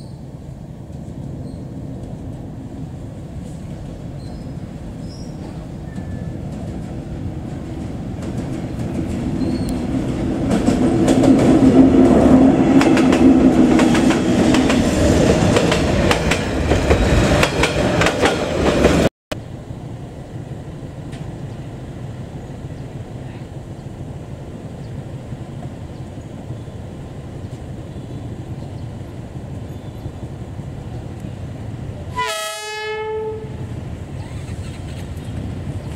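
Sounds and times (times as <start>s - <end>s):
diesel locomotive engine drone: 0.0s - 35.9s
train wheels clacking on rail joints: 5.3s - 19.1s.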